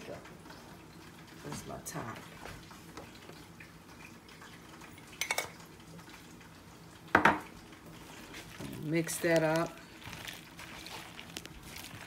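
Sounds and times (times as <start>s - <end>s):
kitchen items clicking and clinking: 5.1s - 5.6s.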